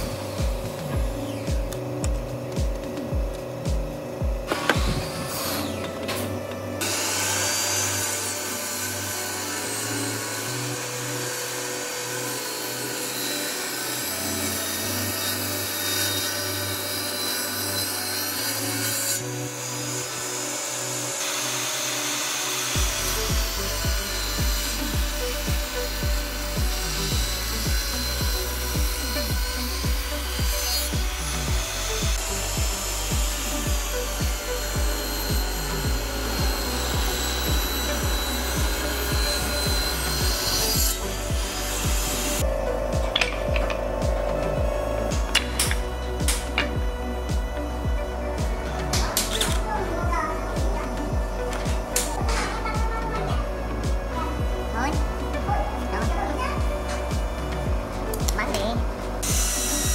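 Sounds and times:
steady beat: 0.0s - 5.2s, 22.8s - 59.9s
background music with bass: 0.0s - 59.9s.

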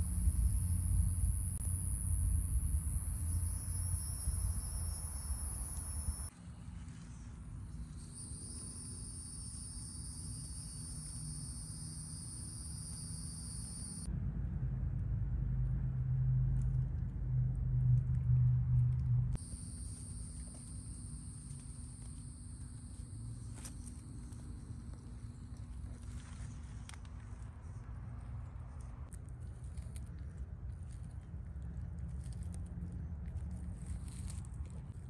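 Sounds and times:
insects chirring: 0.0s - 6.3s, 7.7s - 14.1s, 19.4s - 25.8s
low rumble: 0.0s - 6.8s, 14.0s - 19.4s.

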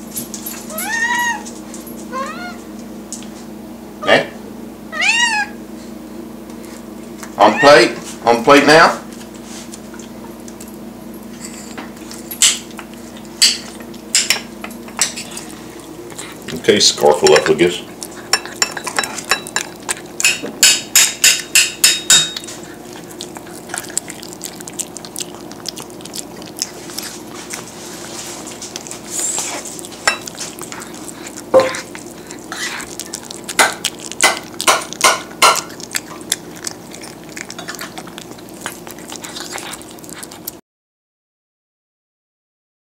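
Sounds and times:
cat chewing and licking: 11.9s - 40.6s.

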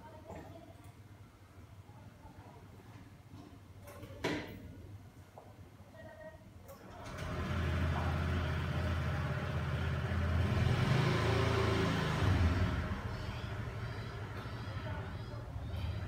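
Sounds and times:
low engine rumble: 7.1s - 16.0s.

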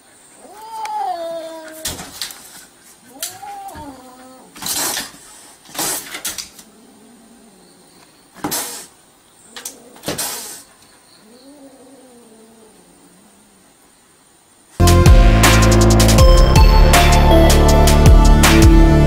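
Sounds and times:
kitten hissing: 3.0s - 6.3s, 8.4s - 9.0s, 9.8s - 12.4s.

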